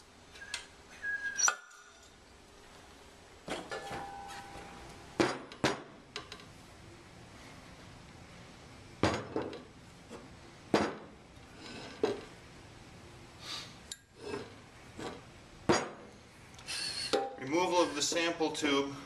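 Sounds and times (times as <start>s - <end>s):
metal scraping and rubbing: 11.5s - 12.4s, 14.2s - 15.2s.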